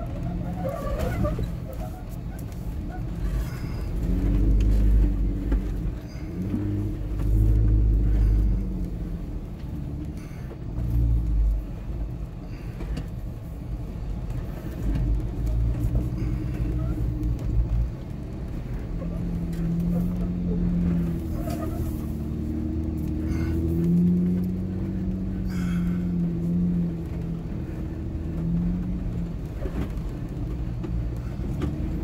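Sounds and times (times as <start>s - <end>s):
vehicle engine rumbling: 0.0s - 32.0s.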